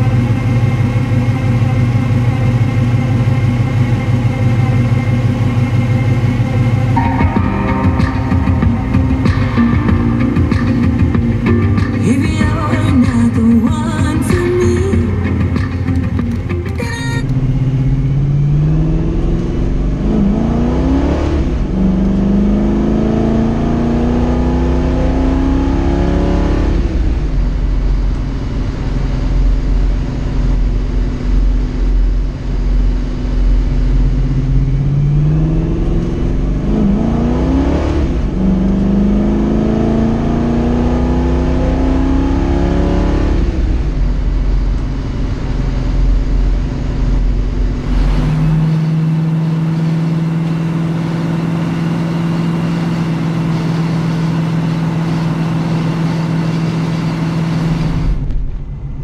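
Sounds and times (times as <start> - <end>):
car engine accelerating: 0.0 - 59.0
road noise rumble: 0.0 - 59.0.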